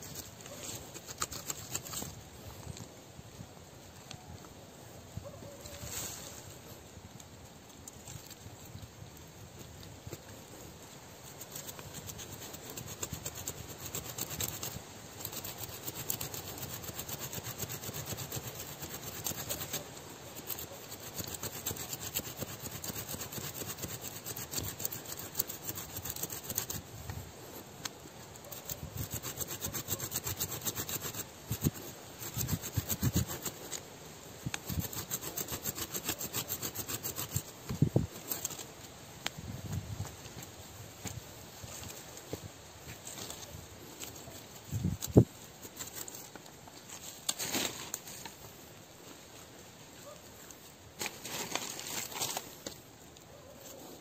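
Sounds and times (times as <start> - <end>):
hand saw cutting roots: 0.0 - 2.2, 11.2 - 27.2, 28.4 - 38.7, 44.0 - 48.4, 51.0 - 52.8.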